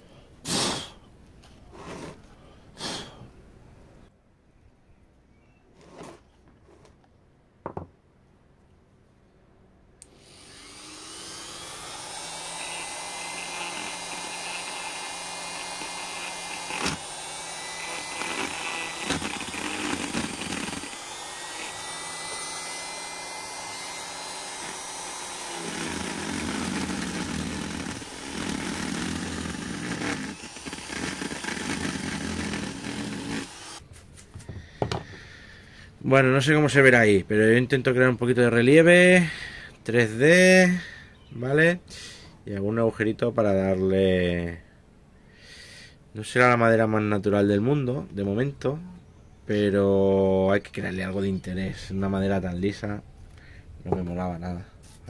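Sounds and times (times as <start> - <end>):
grinder cutting into wood: 10.0 - 33.8
grinder whining: 10.0 - 33.8.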